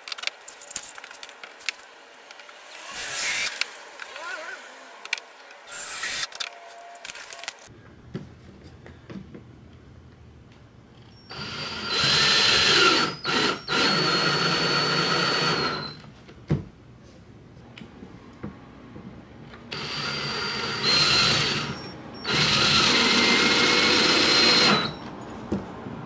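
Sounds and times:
cordless drill driving screws: 5.7 - 6.3, 11.3 - 16.0, 19.7 - 25.1.

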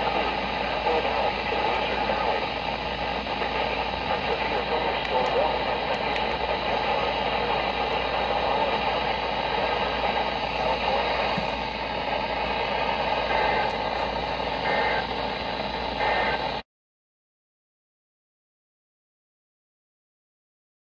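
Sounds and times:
radio static crackling: 0.0 - 16.6.

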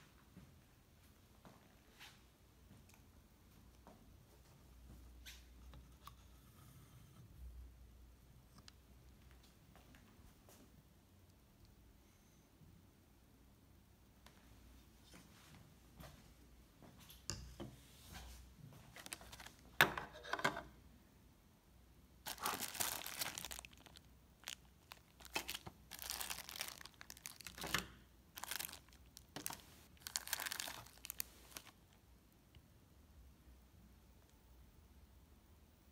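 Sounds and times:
plastic bags crinkling: 18.9 - 19.8, 22.2 - 31.8.

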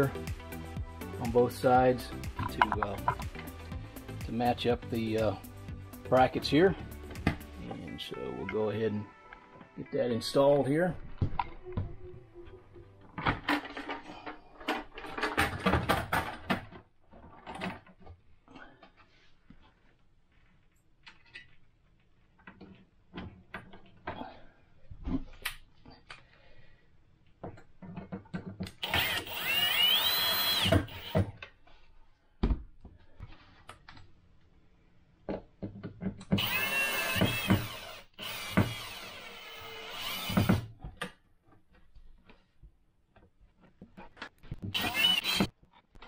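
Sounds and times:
cordless drill driving screws: 28.8 - 31.3, 36.3 - 40.7, 44.6 - 45.5.

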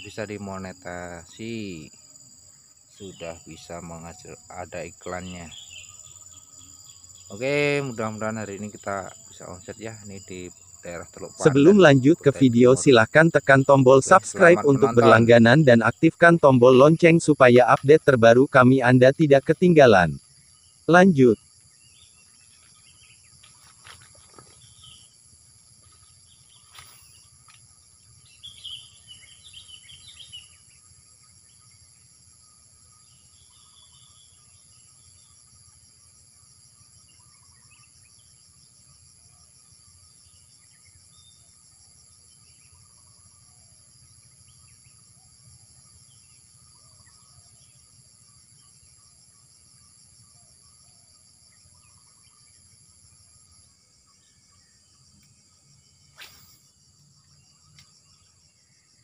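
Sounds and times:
birds chirping: 0.0 - 32.2, 32.8 - 35.6
insects droning: 0.0 - 59.0.

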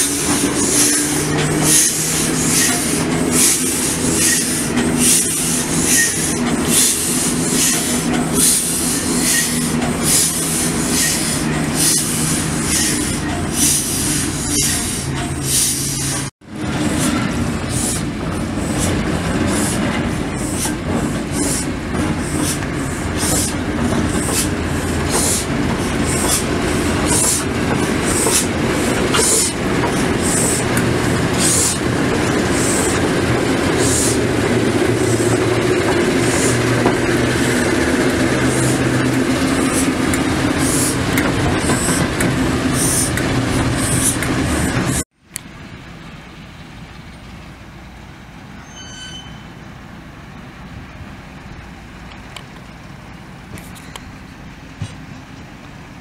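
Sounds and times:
diesel locomotive engine running: 0.0 - 56.0
high-pitched squeak: 4.2 - 6.4, 9.2 - 9.7, 48.6 - 49.6.

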